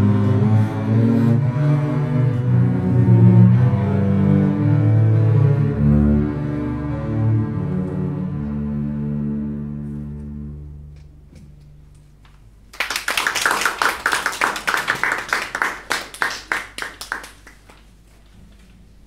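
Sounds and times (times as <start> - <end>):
double basses bowed chord: 0.0 - 12.2
audience applauding: 12.7 - 17.9.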